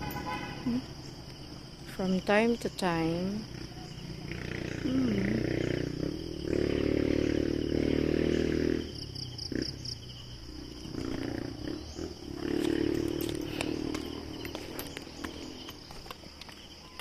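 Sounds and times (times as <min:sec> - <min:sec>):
hard breathing: 0:13.0 - 0:14.4.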